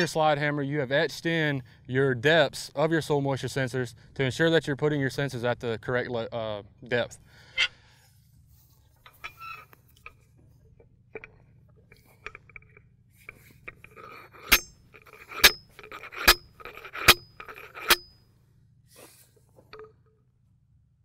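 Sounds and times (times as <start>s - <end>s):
sharp metal clanks with ringing: 13.7s - 18.3s, 19.7s - 20.2s.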